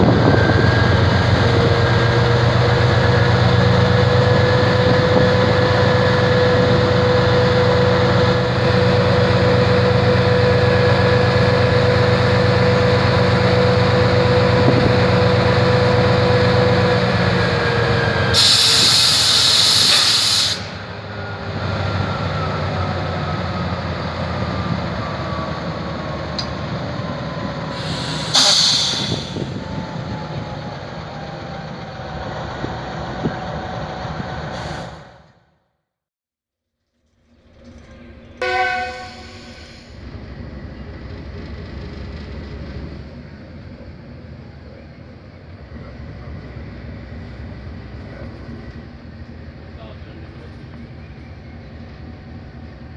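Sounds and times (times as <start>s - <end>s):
air hiss: 18.4s - 20.8s, 27.8s - 29.4s
diesel locomotive engine idling: 37.0s - 52.9s.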